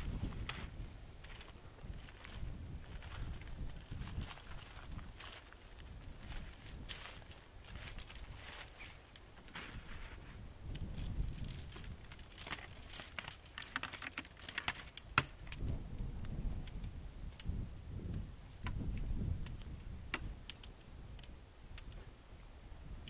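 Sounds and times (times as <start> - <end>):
wind rumble on microphone: 0.0 - 13.4, 15.2 - 23.0
tent pole sections clicking: 6.5 - 22.0
tent pole snapping: 10.6 - 18.8, 19.4 - 22.0.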